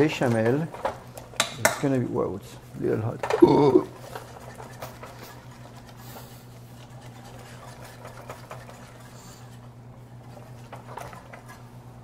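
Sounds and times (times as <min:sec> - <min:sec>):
whisk ticking and scraping in pot: 0:03.9 - 0:12.0.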